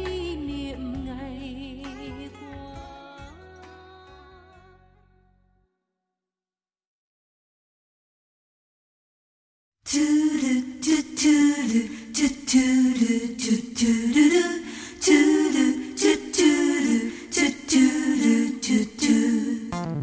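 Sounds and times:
person singing unaccompanied: 0:00.0 - 0:04.3, 0:09.9 - 0:20.0.

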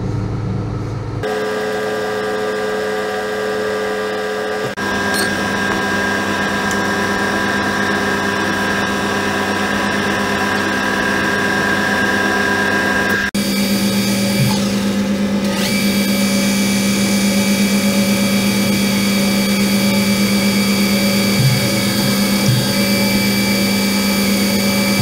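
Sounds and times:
steady machine hum: 0:00.0 - 0:25.0.

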